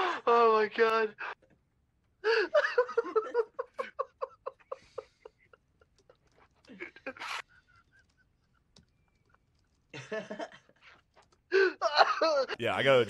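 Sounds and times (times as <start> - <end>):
person laughing: 2.2 - 8.7.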